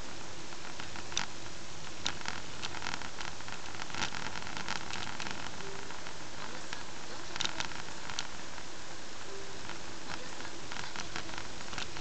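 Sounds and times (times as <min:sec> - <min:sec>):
road and cabin noise: 0:00.0 - 0:12.0.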